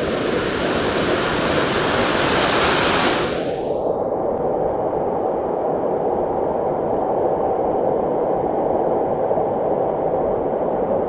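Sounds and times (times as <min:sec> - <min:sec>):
waterfall rushing: 0:00.0 - 0:03.6.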